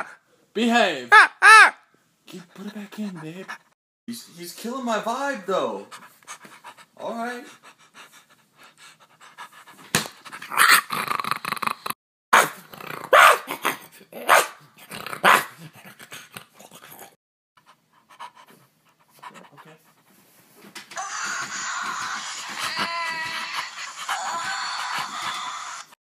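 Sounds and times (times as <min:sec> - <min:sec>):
man imitating dog barking: 0:01.1 - 0:01.8.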